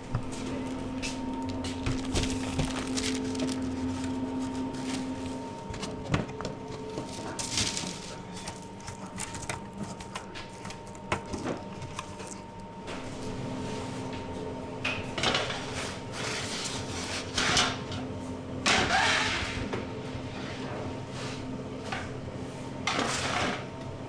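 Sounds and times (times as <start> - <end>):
steady machine hum: 0.0 - 24.0
baking trays clicking and knocking: 5.6 - 12.4.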